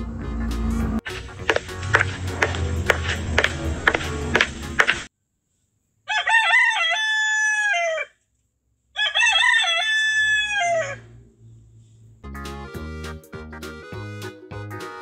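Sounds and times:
rooster crowing: 6.1 - 8.2, 9.0 - 11.2.

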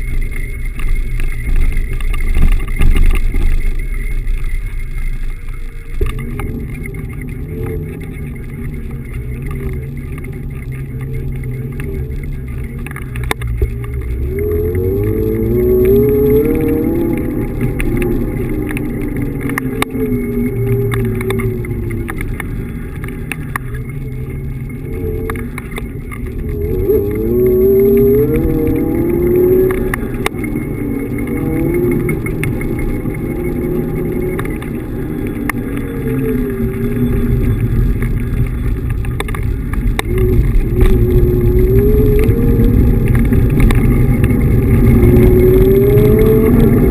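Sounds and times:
wheels rumbling on pavement: 0.0 - 46.9.

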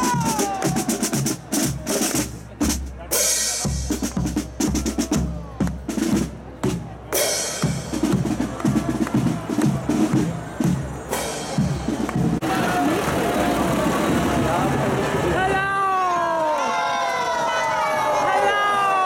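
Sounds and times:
snare drums: 0.0 - 12.5.

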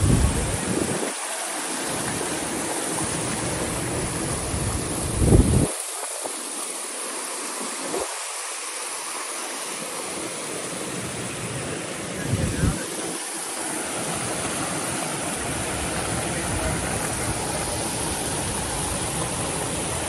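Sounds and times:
wind buffeting microphone: 0.0 - 1.2, 3.2 - 5.8, 12.2 - 13.2
creek rushing over boulders: 0.0 - 20.0.

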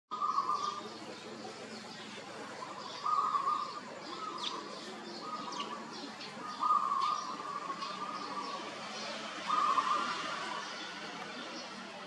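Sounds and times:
bird held call: 9.5 - 10.3.

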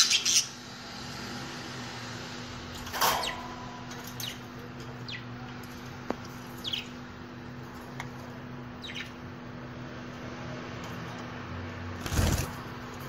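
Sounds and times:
budgerigars chirping: 0.0 - 0.6, 8.8 - 9.2
steady low hum: 0.5 - 13.0.

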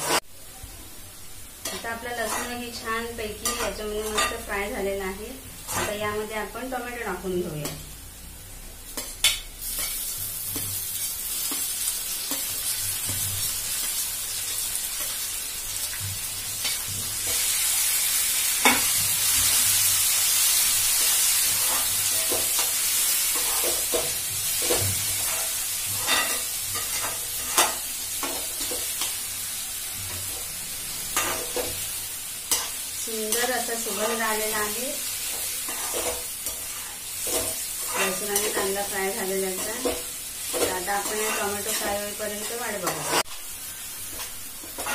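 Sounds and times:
tomatoes sizzling in oil: 0.0 - 44.9
metal spoon scraping pan: 1.6 - 2.6, 35.3 - 43.3.

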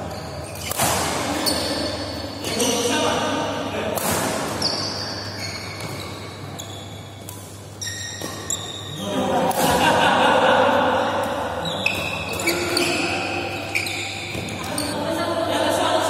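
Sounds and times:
shoes squeaking on court floor: 0.0 - 3.0, 4.3 - 9.2, 11.6 - 15.0.

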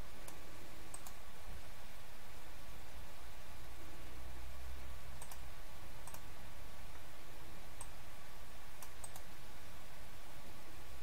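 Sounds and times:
faint low hum: 0.0 - 11.0
mouse buttons clicking: 0.2 - 1.2, 5.2 - 5.4, 6.0 - 6.3, 8.8 - 9.3.

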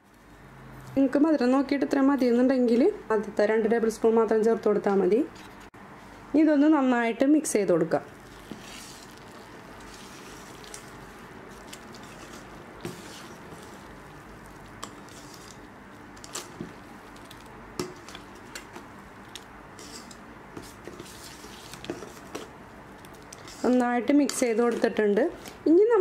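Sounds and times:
ladle stirring thick batter: 8.1 - 25.7.

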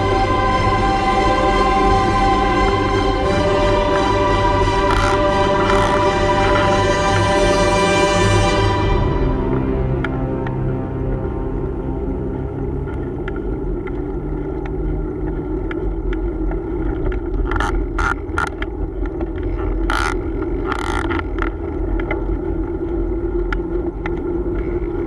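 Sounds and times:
road and traffic rumble: 0.0 - 25.0
light rattling ticks: 12.9 - 24.6.

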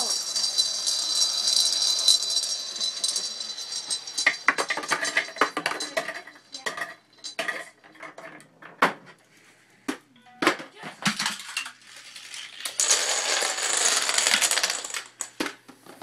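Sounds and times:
marbles rattling round a bowl: 0.0 - 7.8, 11.2 - 15.3.

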